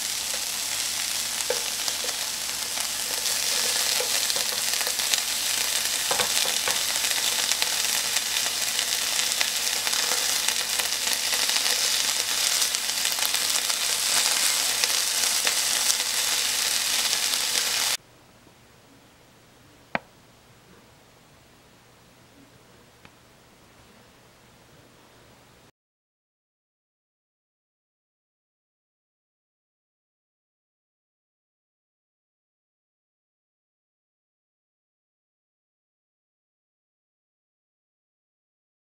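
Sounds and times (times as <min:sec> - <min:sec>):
food sizzling in frying pan: 0:00.0 - 0:18.0
chopsticks tapping: 0:01.5 - 0:07.4.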